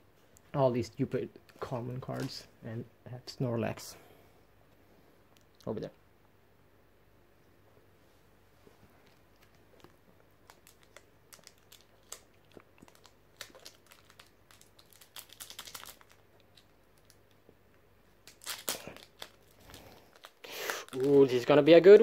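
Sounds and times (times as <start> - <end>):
foil wrapper crinkling: 9.1 - 17.3, 18.2 - 21.6.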